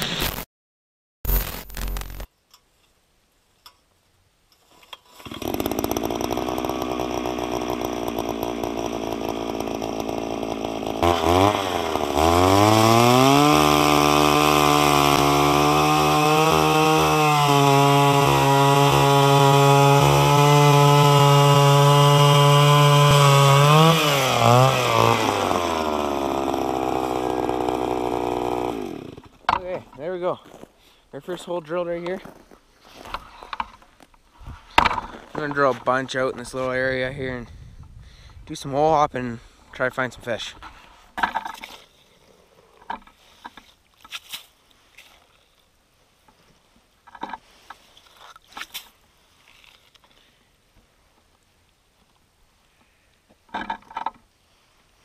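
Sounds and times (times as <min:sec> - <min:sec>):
ice auger engine revving: 0:05.2 - 0:29.6.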